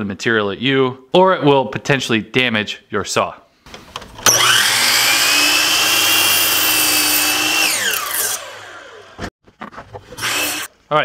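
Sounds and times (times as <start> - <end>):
miter saw whining and cutting wood: 4.2 - 9.3, 10.2 - 10.7.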